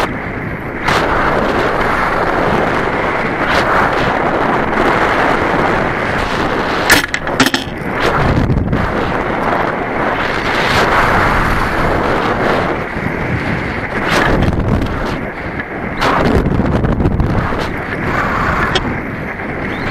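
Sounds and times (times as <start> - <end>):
wind rushing over camera: 0.0 - 19.9
sharp cracks: 6.8 - 8.1.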